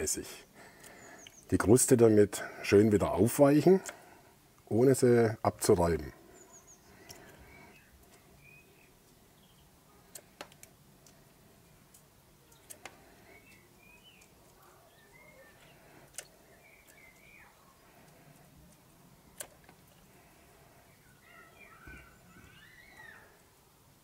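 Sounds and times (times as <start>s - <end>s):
faint bird chirps: 0.4s - 1.7s, 6.2s - 10.3s, 12.4s - 23.5s
sharp clicks: 10.0s - 11.2s, 11.9s - 14.6s, 15.6s - 17.3s, 18.0s - 20.0s.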